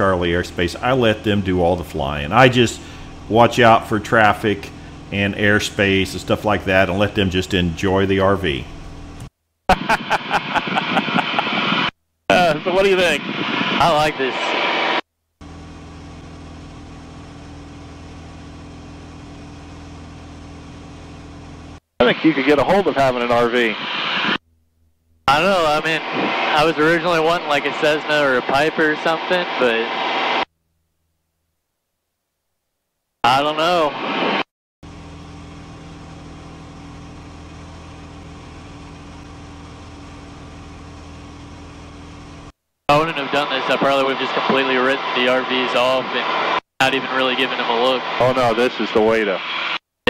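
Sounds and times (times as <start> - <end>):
aircraft engine droning: 0.0 - 9.2, 25.3 - 30.4, 34.9 - 42.5.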